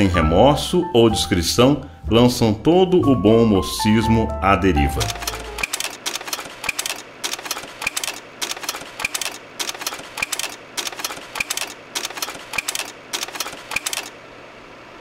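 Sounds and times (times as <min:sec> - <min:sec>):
mechanical clicking clatter: 0:05.0 - 0:14.2.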